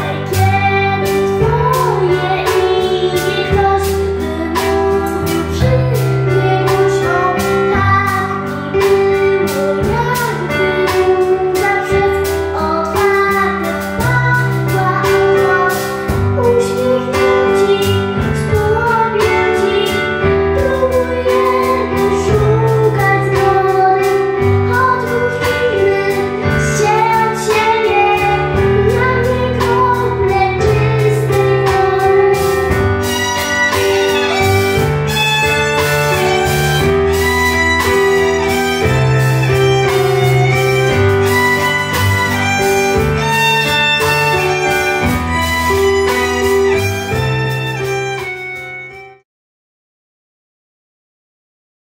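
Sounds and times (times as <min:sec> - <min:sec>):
girl singing into microphone: 0:00.0 - 0:48.2
pop accompaniment with beat: 0:00.0 - 0:49.2
violin: 0:09.9 - 0:49.2.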